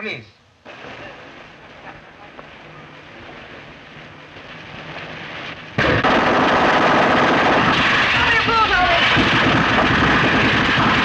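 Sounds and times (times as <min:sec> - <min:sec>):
submachine gun rapid fire: 0:05.8 - 0:11.0.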